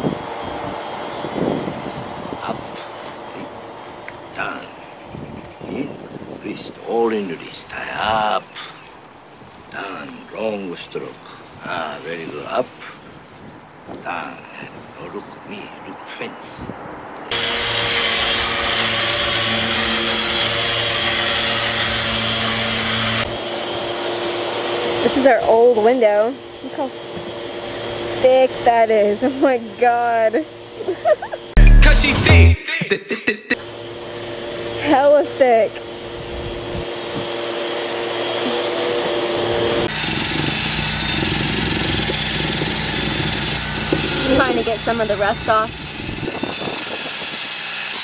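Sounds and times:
drill wire brush grinding metal: 0:17.3 - 0:23.3, 0:39.8 - 0:48.0
electric sander motor whine: 0:17.3 - 0:25.1, 0:35.7 - 0:48.0
machine hum: 0:35.7 - 0:46.6.

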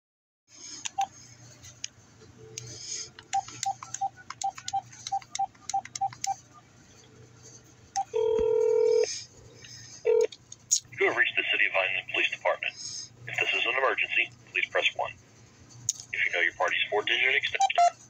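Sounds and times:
phone keypad beeps: 0:03.3 - 0:06.4
keypad taps: 0:03.4 - 0:06.4.

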